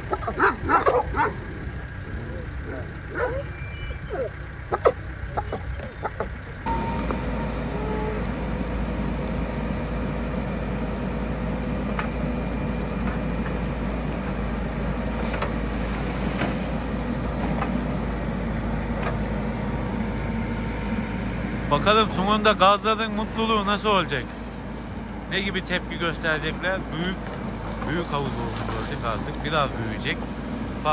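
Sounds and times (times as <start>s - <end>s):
diesel engine running: 0.0s - 30.9s.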